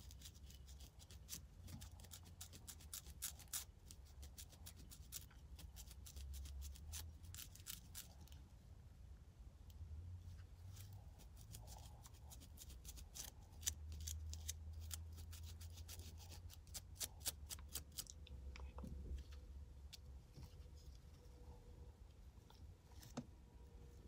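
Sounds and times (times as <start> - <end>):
comb scratching over scalp: 0.0 - 8.4, 10.7 - 18.1
low steady hum: 0.0 - 24.0.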